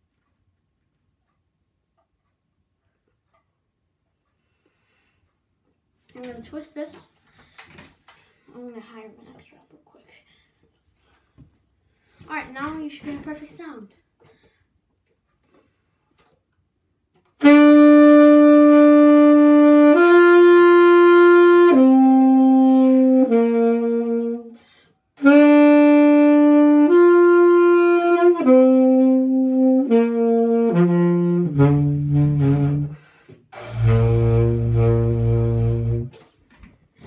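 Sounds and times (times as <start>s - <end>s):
tenor saxophone playing: 17.4s - 24.6s, 25.2s - 36.2s.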